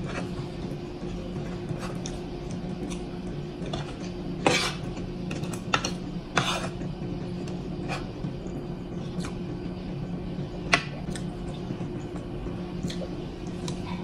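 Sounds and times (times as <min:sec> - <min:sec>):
steady low hum: 0:00.0 - 0:14.0
cutlery scraping wooden plate: 0:03.7 - 0:04.8, 0:05.8 - 0:06.7.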